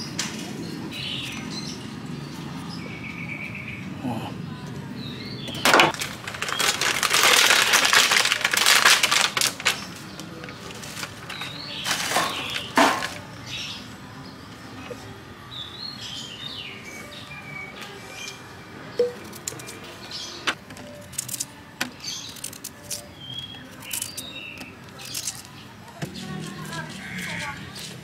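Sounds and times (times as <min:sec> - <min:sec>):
small birds chirping: 0:00.0 - 0:07.4, 0:09.6 - 0:28.0
scraping and rustling: 0:05.6 - 0:13.3.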